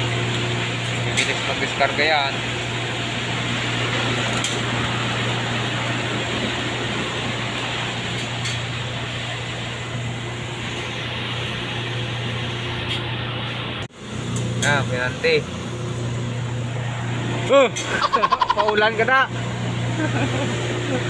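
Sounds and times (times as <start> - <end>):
air-conditioning fan hiss: 0.0 - 21.0
engine idling hum: 0.0 - 21.0.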